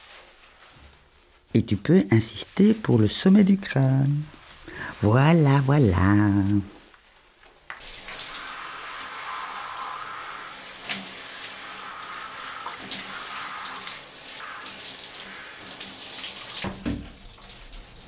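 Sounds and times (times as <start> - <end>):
shower water running: 7.7 - 18.0.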